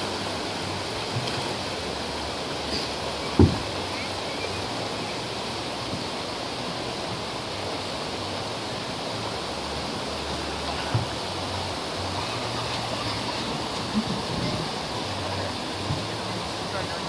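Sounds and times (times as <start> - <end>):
river water rushing over rocks: 0.0 - 17.0
low thump: 3.4 - 3.7.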